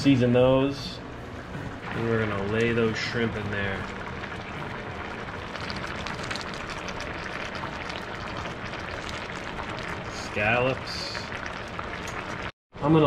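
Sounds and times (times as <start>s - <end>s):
broth simmering and bubbling: 0.2s - 12.6s
small crackling pops: 11.3s - 12.5s.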